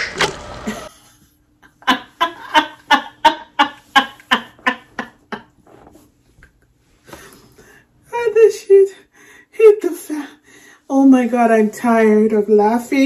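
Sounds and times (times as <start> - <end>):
woman laughing hard: 1.7 - 5.5.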